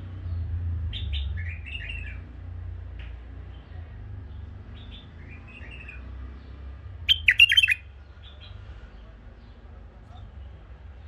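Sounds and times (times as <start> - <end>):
bird chirping and warbling: 7.1 - 7.8.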